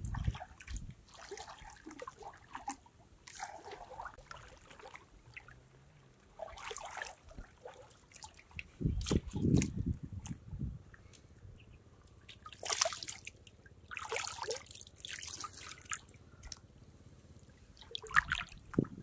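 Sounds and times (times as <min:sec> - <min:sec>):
heavy water slosh: 0:00.0 - 0:05.6, 0:06.3 - 0:09.8, 0:12.3 - 0:16.0, 0:17.8 - 0:19.0
water splashing and trickling: 0:00.0 - 0:16.6, 0:17.4 - 0:19.0.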